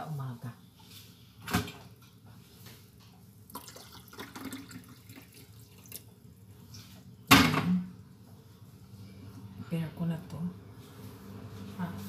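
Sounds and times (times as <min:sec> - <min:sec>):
water trickling from kettle: 0:03.5 - 0:06.1.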